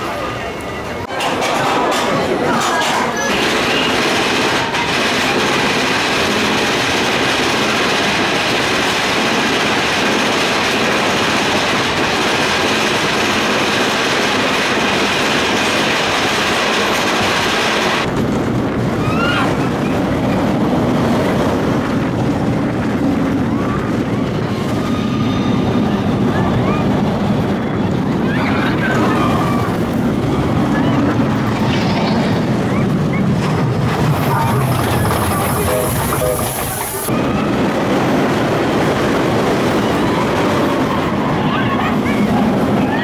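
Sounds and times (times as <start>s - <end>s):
roller coaster wheels rumbling: 0.0s - 43.0s.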